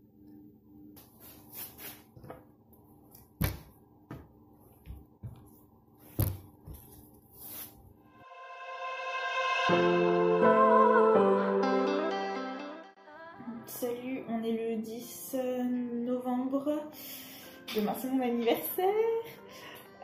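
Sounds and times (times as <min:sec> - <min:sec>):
quiet music: 0:08.2 - 0:20.0.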